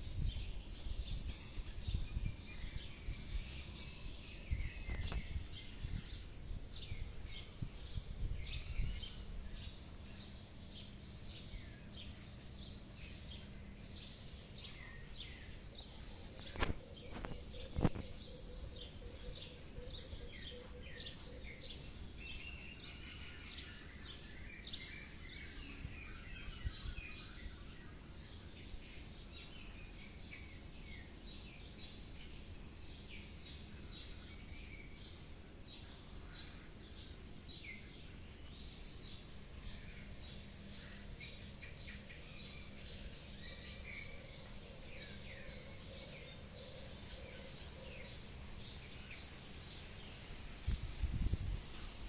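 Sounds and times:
small birds chirping: 0.0s - 52.0s.

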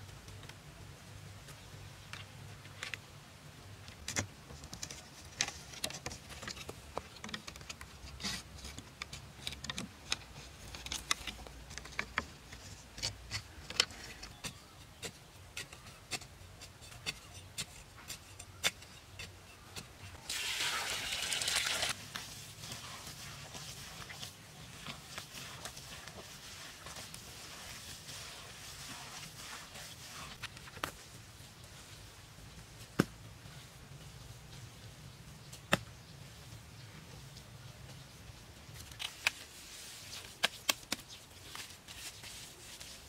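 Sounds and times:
bamboo strips clicking and knocking: 3.8s - 20.2s, 38.7s - 43.0s
water pouring into soil: 20.2s - 22.0s.

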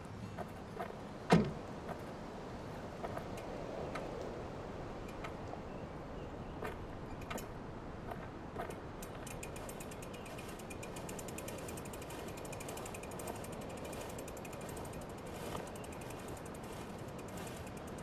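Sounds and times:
steady outdoor hiss: 0.0s - 18.0s
bike clicks and rattles: 5.0s - 5.6s, 6.6s - 18.0s.

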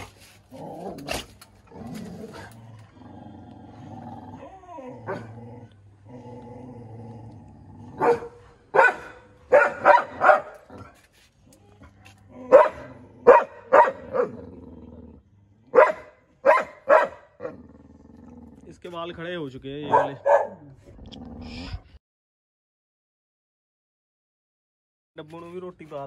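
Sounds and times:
large dog barking: 5.0s - 5.4s, 7.9s - 11.0s, 12.4s - 14.5s, 15.7s - 17.7s, 19.8s - 20.7s.

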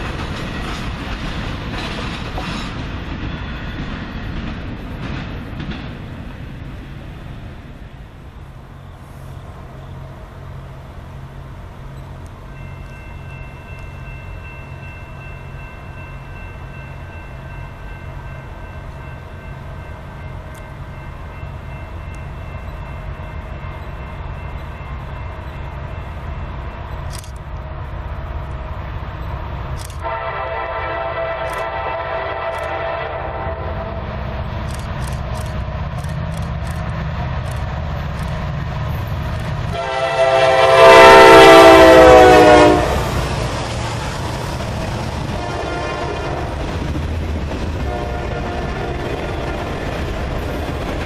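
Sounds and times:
diesel locomotive engines droning: 0.0s - 51.0s
train air horn chord: 30.0s - 34.0s, 39.7s - 43.2s, 45.4s - 46.6s, 47.9s - 49.8s.

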